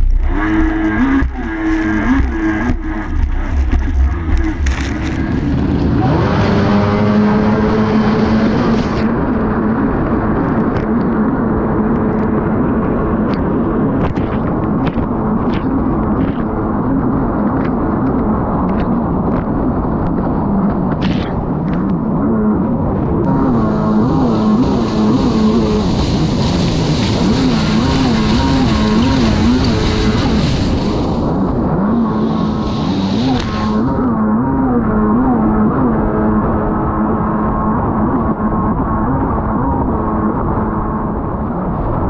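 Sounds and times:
snowmobile engine revving: 0:00.0 - 0:10.4, 0:22.2 - 0:41.0.

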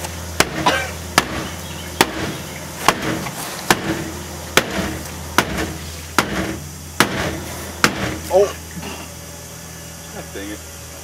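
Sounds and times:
steady low hum: 0:00.0 - 0:11.0
axe chopping into wooden door: 0:04.6 - 0:08.2.

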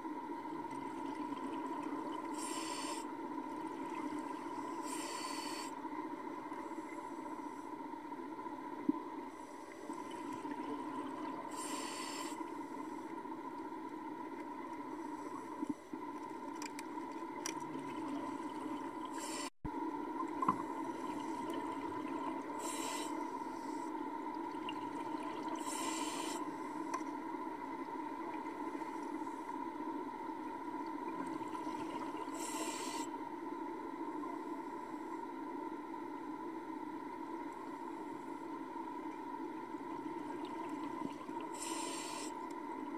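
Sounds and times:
steady underwater hum: 0:00.0 - 0:42.9
diver breathing through regulator: 0:02.3 - 0:03.1, 0:04.6 - 0:05.8, 0:11.5 - 0:13.1, 0:19.1 - 0:19.5, 0:22.6 - 0:23.9, 0:25.6 - 0:26.9, 0:32.3 - 0:33.1, 0:41.5 - 0:42.4.

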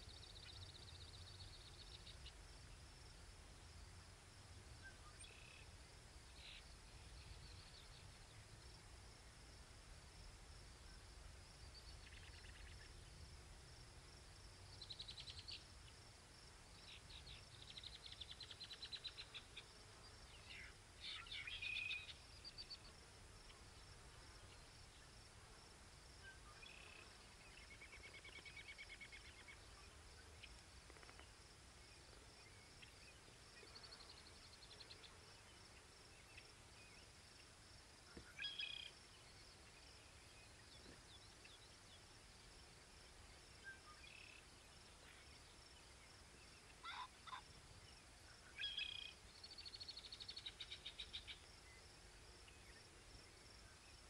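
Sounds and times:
faint high chirps and trills: 0:26.1 - 0:42.0, 0:43.2 - 0:54.0.

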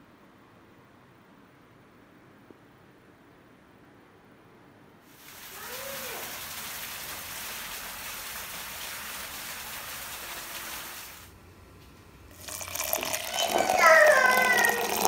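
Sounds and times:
steady rainfall: 0:05.1 - 0:11.3.

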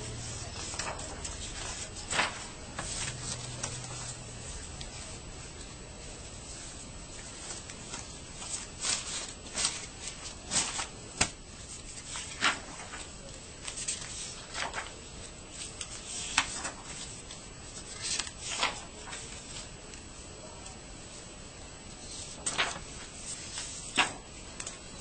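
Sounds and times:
paper sheets rustling: 0:00.0 - 0:20.7, 0:22.0 - 0:25.0.

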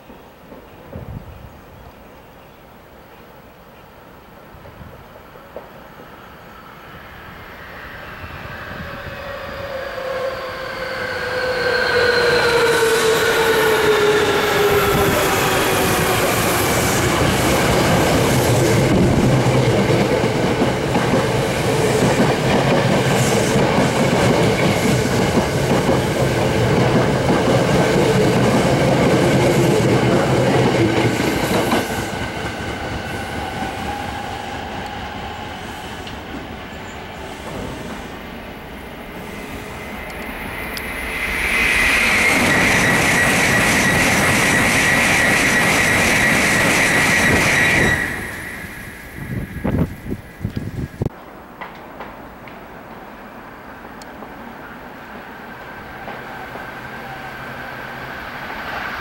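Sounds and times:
electric train whine: 0:05.2 - 0:59.0
train wheels clacking on rails: 0:11.4 - 0:38.1, 0:41.6 - 0:48.3.

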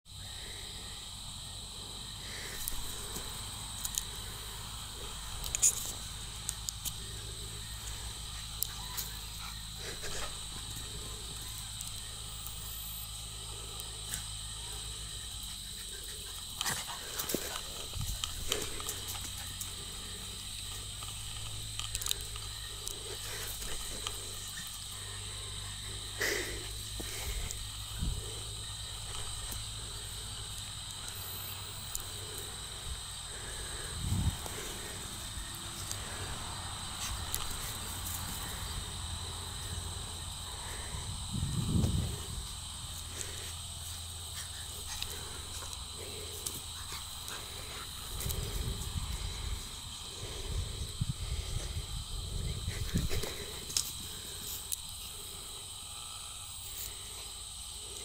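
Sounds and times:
insect drone: 0:00.0 - 0:58.0
wind on microphone: 0:33.9 - 0:34.5, 0:40.9 - 0:42.5, 0:50.4 - 0:53.4.

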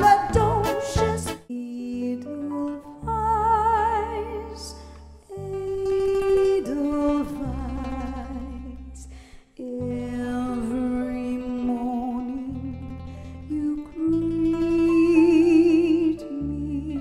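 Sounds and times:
live band with bass guitar: 0:00.0 - 0:01.4
woman singing with vibrato: 0:00.0 - 0:17.0.

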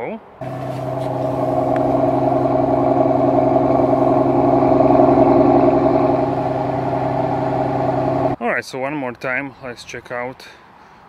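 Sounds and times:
car engine idling: 0:00.4 - 0:08.4.

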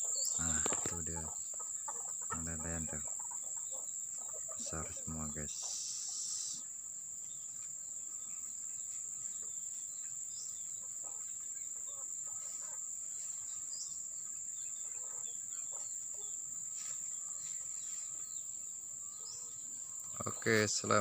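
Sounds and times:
short bird calls: 0:00.0 - 0:06.8
insects droning: 0:00.0 - 0:21.0.

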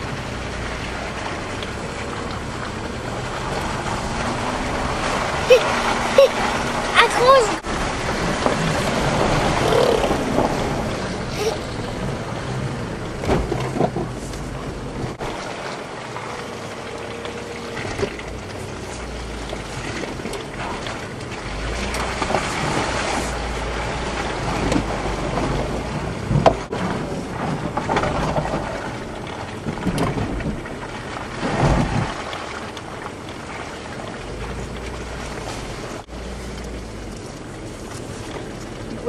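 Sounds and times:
vehicle engine rumble: 0:00.0 - 0:39.0
suspension knocks and bumps: 0:07.6 - 0:16.5, 0:17.2 - 0:33.5.

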